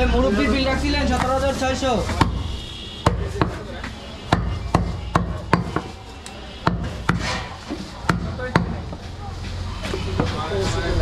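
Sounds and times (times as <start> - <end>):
knife chopping meat on wood: 3.0 - 3.6, 4.3 - 6.0, 6.7 - 9.0.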